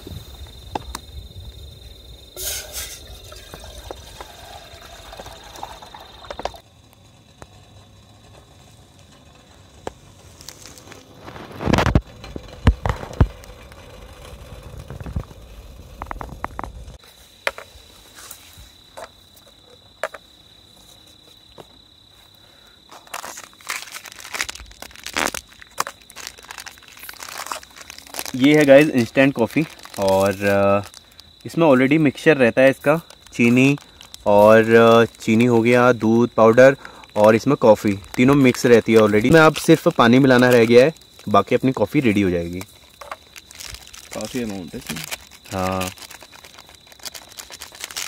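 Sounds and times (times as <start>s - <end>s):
crickets trilling: 0.0s - 48.0s
water pouring into kettle: 2.6s - 6.6s
foil sachets crinkling: 10.3s - 11.9s, 23.0s - 48.0s.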